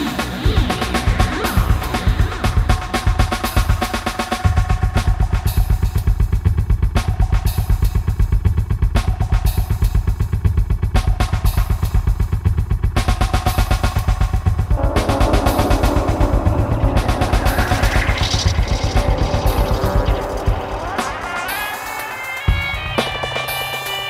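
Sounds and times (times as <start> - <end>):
looped drum beat music: 0.0 - 24.0.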